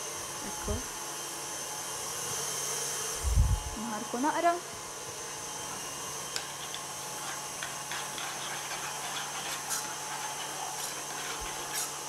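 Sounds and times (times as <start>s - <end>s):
steady hiss and hum: 3.1s - 4.1s
jam being stirred in a pan: 6.4s - 12.0s.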